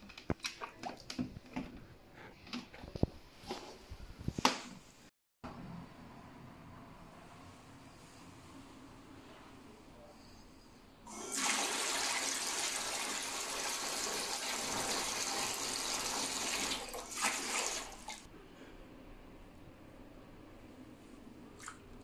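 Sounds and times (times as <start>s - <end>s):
water gushing into tub: 11.1s - 18.3s.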